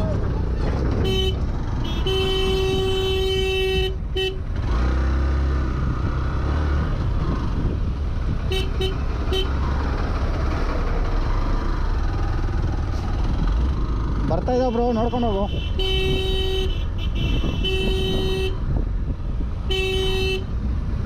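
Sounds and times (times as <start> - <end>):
vehicle horn toots: 1.0 - 4.4, 8.5 - 9.5, 15.0 - 18.6, 19.7 - 20.5.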